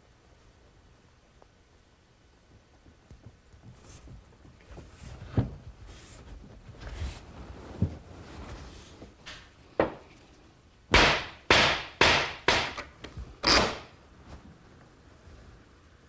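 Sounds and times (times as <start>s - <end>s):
mallet knocking wood: 10.9s - 12.9s.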